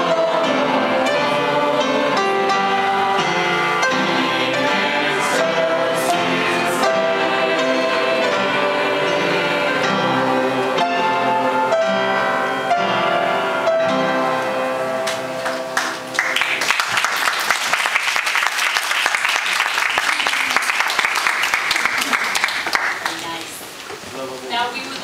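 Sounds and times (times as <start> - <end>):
piano duet: 0.0 - 25.0
audience applause: 15.0 - 23.7.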